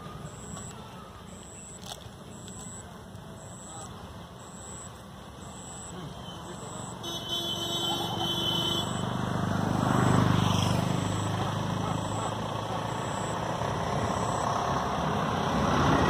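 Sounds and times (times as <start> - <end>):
vehicle engine passing: 7.7 - 16.0.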